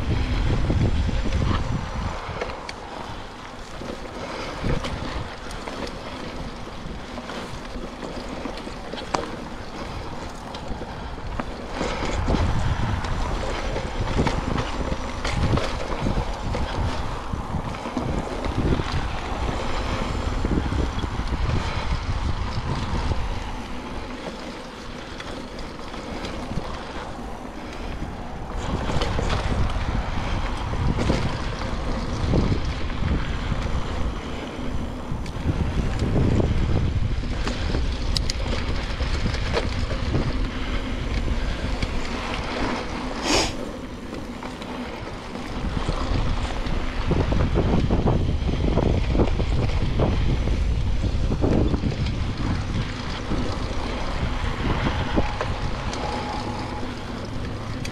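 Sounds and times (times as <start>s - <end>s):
bike tyre noise: 0.0s - 57.9s
wind rushing over microphone: 0.0s - 57.9s
bike knocking: 0.1s - 57.9s.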